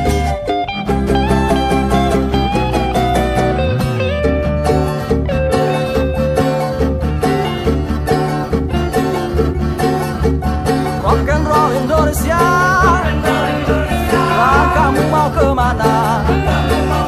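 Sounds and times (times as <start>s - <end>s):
high wavering melody line: 0.0s - 17.0s
live rock band playing: 0.0s - 17.0s.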